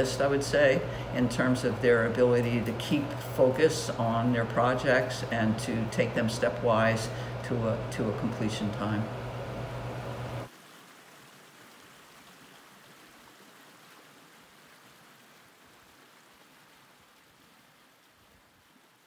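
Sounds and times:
low hum: 0:00.0 - 0:10.5.

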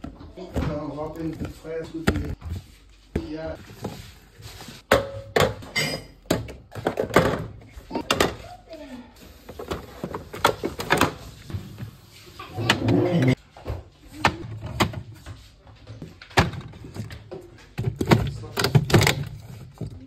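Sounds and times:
groceries knocking against fridge shelves: 0:12.6 - 0:15.2, 0:15.8 - 0:20.0.

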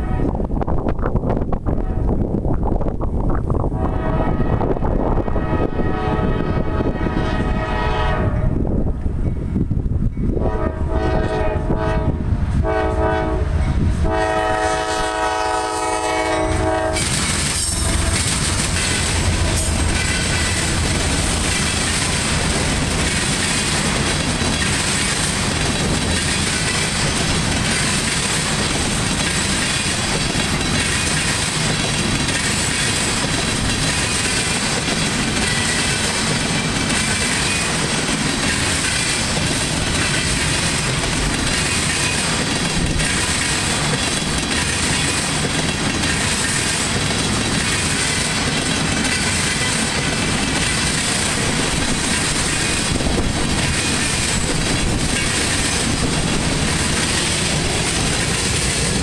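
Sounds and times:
locomotive horn blasts: 0:00.0 - 0:00.4, 0:03.8 - 0:08.6, 0:10.4 - 0:20.8
train rolling with clickety-clack: 0:00.0 - 0:59.0.

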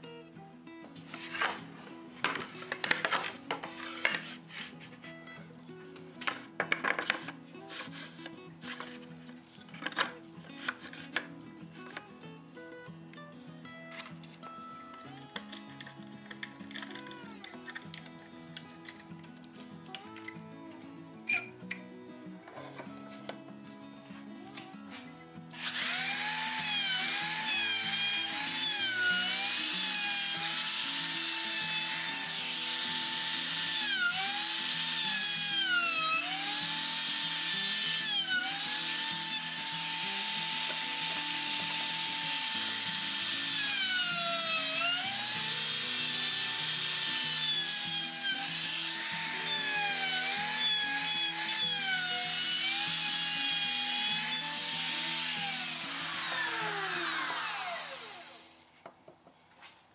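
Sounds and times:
electric router whining: 0:25.5 - 0:58.6
router cutting wood hiss: 0:25.5 - 0:58.6.

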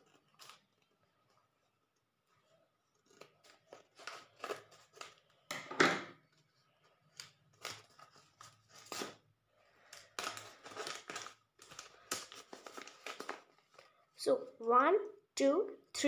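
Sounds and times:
scissors snipping paper: 0:00.0 - 0:01.0, 0:02.8 - 0:05.3
paper rustling: 0:00.0 - 0:05.5, 0:06.2 - 0:14.0.

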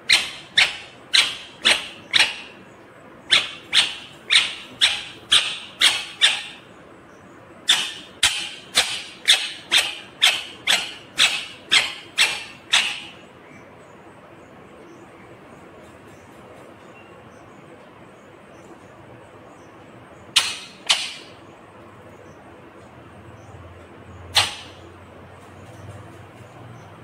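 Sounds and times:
parakeet sharp calls: 0:00.0 - 0:06.7, 0:07.6 - 0:13.6, 0:20.3 - 0:21.5, 0:24.3 - 0:24.9.

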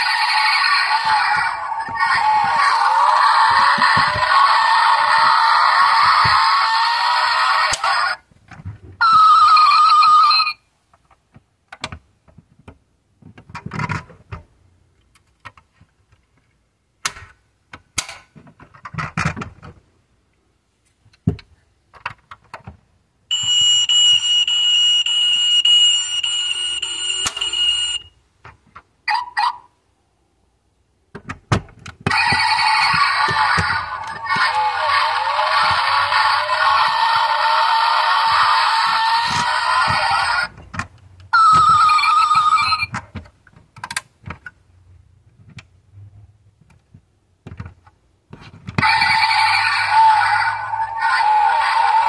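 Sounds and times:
electronic sound effects from toy speaker: 0:00.0 - 0:08.2, 0:09.0 - 0:10.6, 0:23.3 - 0:28.1, 0:32.1 - 0:40.6, 0:41.3 - 0:43.0, 0:48.8 - 0:52.0.

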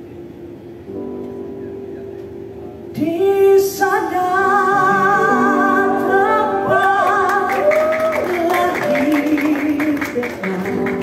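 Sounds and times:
electronic keyboard chords: 0:00.8 - 0:11.0
woman singing with vibrato: 0:03.0 - 0:11.0.

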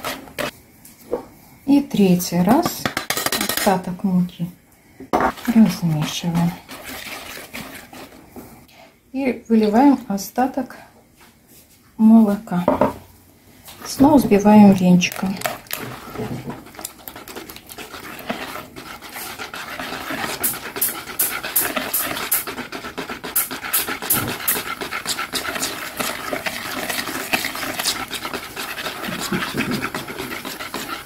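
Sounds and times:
whisk squelching through batter: 0:00.0 - 0:00.5, 0:05.3 - 0:08.6, 0:13.8 - 0:31.0
whisk ticking on bowl: 0:14.4 - 0:31.0.

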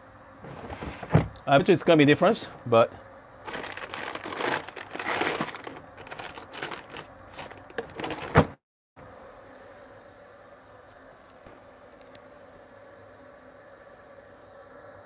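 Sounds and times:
rustling and crinkling handling noise: 0:00.4 - 0:08.6.

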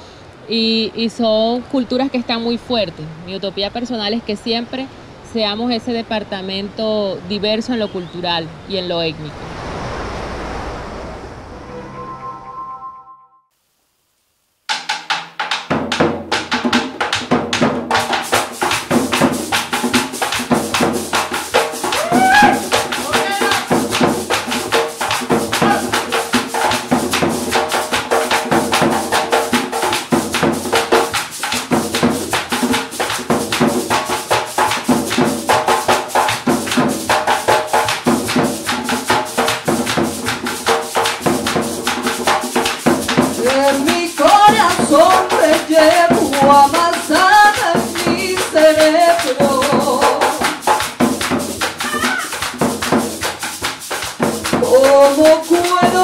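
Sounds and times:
hand drums and maracas: 0:14.7 - 0:56.0
woman singing: 0:43.4 - 0:50.6, 0:54.6 - 0:56.0.

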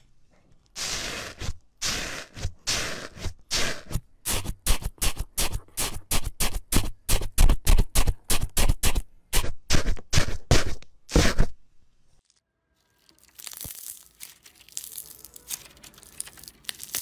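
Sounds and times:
crunchy foam squishes: 0:12.2 - 0:17.0.

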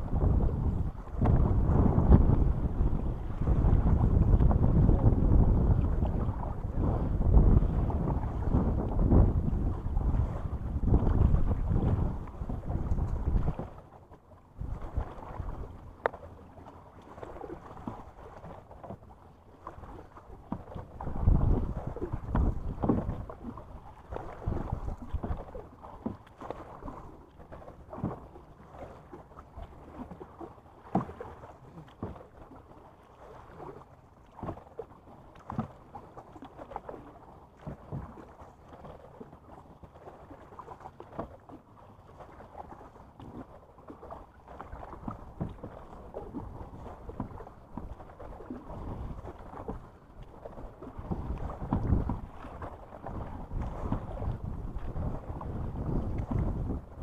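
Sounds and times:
wind rumble on microphone: 0:00.0 - 0:27.2, 0:42.1 - 0:57.0
paddle splashing in water: 0:00.0 - 0:57.0.

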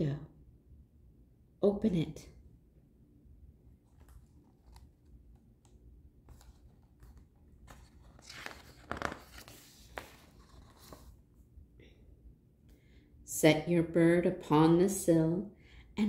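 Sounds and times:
paper page rustling: 0:03.8 - 0:11.3.

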